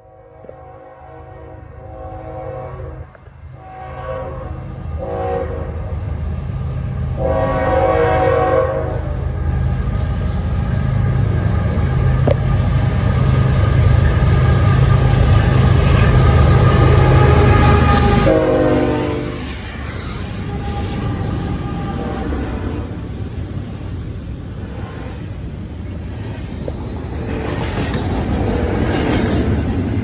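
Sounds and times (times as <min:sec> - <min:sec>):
train horn blasts: 0:00.0 - 0:05.9, 0:07.2 - 0:09.2, 0:16.5 - 0:23.0
train rail noise: 0:00.0 - 0:30.0
locomotive engines rumbling: 0:00.2 - 0:30.0.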